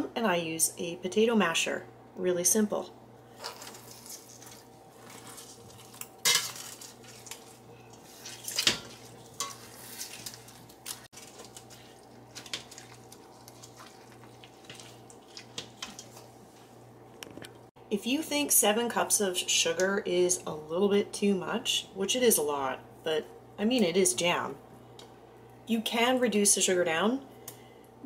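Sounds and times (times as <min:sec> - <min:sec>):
strawberries being crushed: 0:03.4 - 0:16.3.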